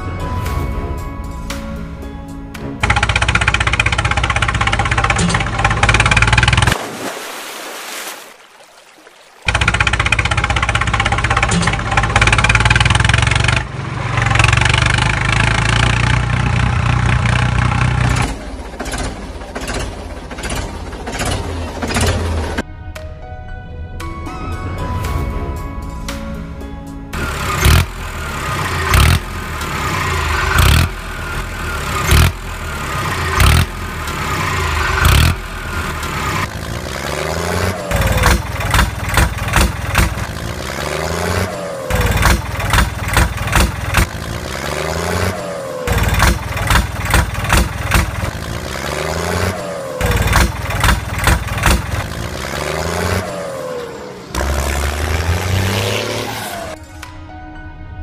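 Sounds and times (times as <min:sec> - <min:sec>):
tractor engine revving: 0:02.0 - 0:07.0, 0:09.4 - 0:22.6, 0:27.1 - 0:56.9.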